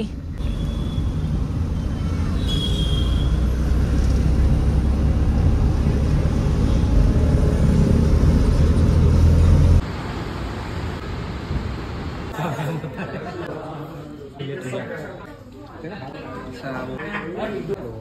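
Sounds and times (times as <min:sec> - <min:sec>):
car engine and road rumble: 0:00.0 - 0:12.3.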